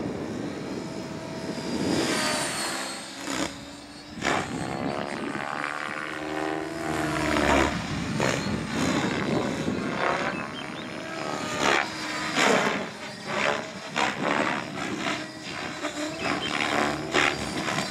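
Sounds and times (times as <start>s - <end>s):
helicopter rotor and motor hum: 0.0s - 17.9s.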